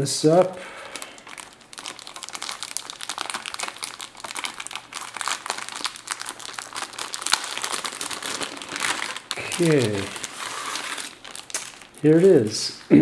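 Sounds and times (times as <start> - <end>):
plastic bag crinkling: 0.7 - 12.9.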